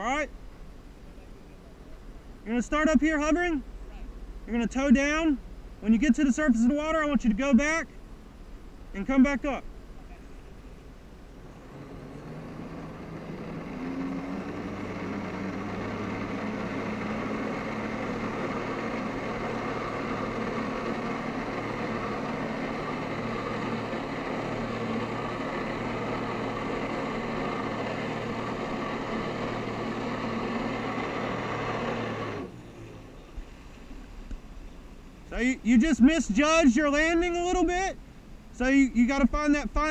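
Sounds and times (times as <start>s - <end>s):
jet ski engine at high power: 9.0s - 39.9s
water jet rushing: 11.4s - 32.6s.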